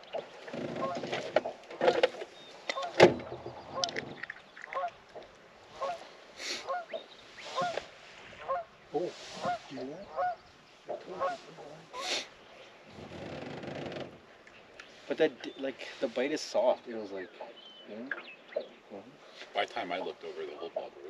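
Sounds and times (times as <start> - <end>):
geese honking: 2.7 - 4.0, 5.7 - 12.3.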